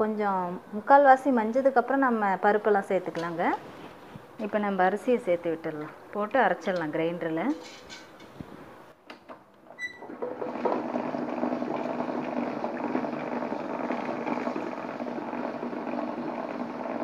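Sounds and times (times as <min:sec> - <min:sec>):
wet grinder running: 0:10.0 - 0:17.0.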